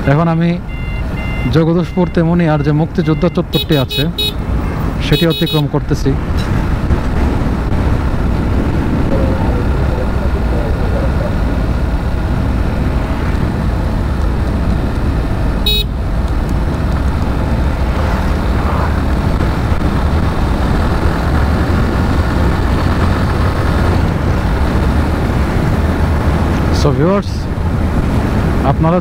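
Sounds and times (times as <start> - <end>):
wind rushing on microphone: 6.1 - 29.0
motorcycle engine: 6.2 - 27.0.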